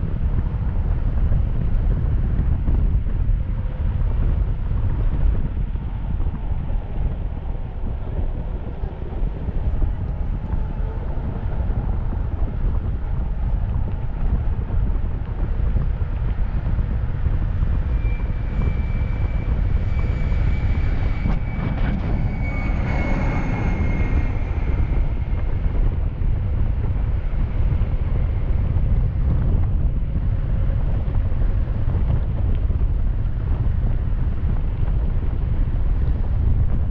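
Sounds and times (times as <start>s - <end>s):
wind rushing over microphone: 0.0s - 36.9s
faint high whine: 6.1s - 29.8s.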